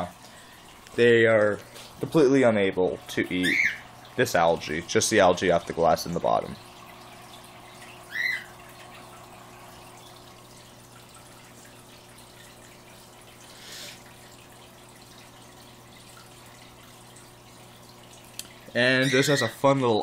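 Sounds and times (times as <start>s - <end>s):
aquarium filter humming: 0.0s - 20.0s
cockatiel chirp: 3.4s - 3.8s, 8.1s - 8.5s.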